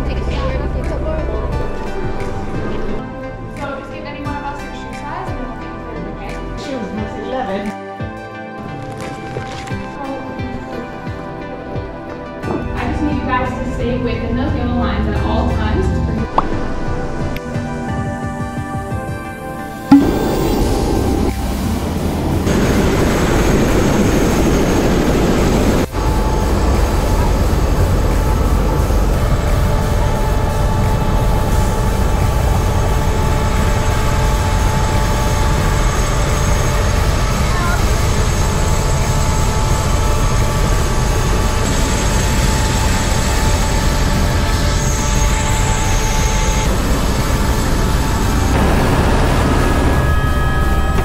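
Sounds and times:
helicopter engine and rotor: 0:16.9 - 0:51.0.

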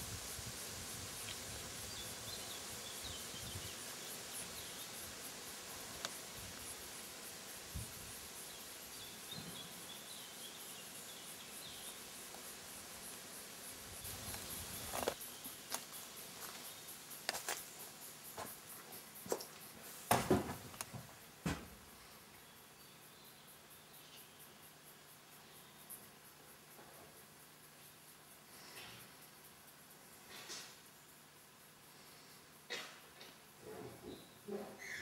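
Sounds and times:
insect chirring: 0:00.0 - 0:19.8
knocks and scuffs: 0:19.2 - 0:21.8
faint bird calls: 0:34.1 - 0:35.0.

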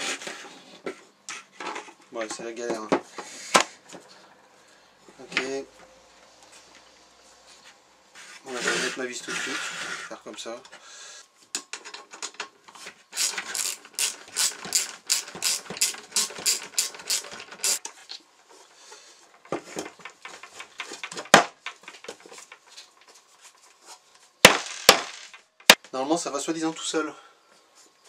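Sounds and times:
screw turning with rapid clicks: 0:13.1 - 0:17.8.

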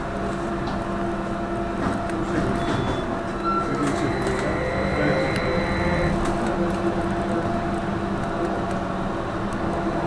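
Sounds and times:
road rumble: 0:00.0 - 0:10.0
electric traction hum: 0:03.1 - 0:09.4
faint rising whine: 0:03.4 - 0:06.2.

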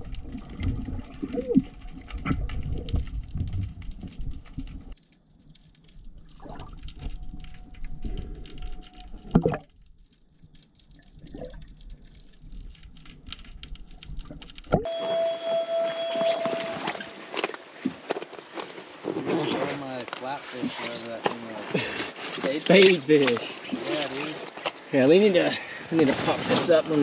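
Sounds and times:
underwater water bubbling: 0:00.0 - 0:14.9
thin high tone: 0:14.8 - 0:17.6.

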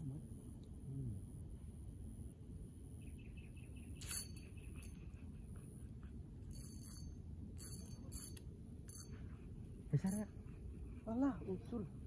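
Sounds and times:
low steady rumble: 0:00.0 - 0:12.0
fishing reel ticking and clicking: 0:04.0 - 0:05.2, 0:06.5 - 0:09.3.

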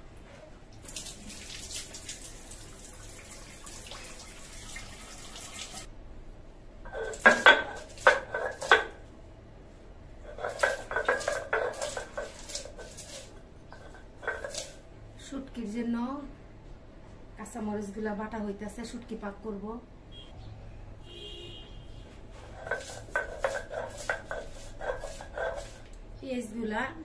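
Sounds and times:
water running: 0:00.8 - 0:05.9, 0:06.9 - 0:09.0, 0:10.3 - 0:14.9, 0:22.6 - 0:26.0
stone roller crushing chillies: 0:06.9 - 0:09.0, 0:10.3 - 0:14.8, 0:22.5 - 0:25.9
stone and metal clacks: 0:07.0 - 0:09.0, 0:10.3 - 0:12.9, 0:22.6 - 0:25.7.

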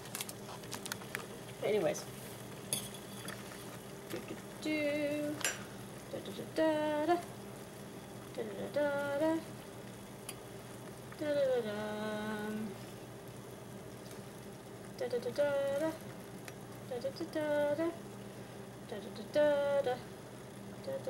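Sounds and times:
noodles simmering in saucepan: 0:00.0 - 0:20.8
woman humming: 0:04.2 - 0:05.4, 0:08.3 - 0:09.5, 0:11.2 - 0:12.8.

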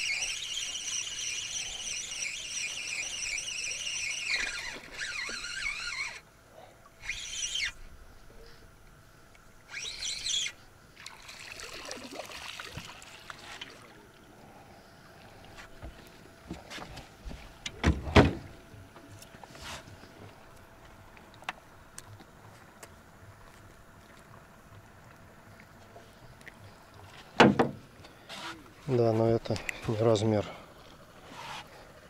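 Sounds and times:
spinning reel whirring: 0:00.0 - 0:06.3, 0:07.0 - 0:07.8, 0:09.7 - 0:10.6
trickling water: 0:11.0 - 0:15.6.

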